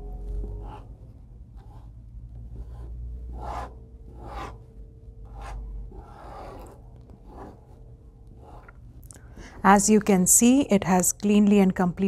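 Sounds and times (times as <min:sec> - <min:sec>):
spatula scraping tabletop: 0:02.5 - 0:04.6, 0:05.3 - 0:07.8.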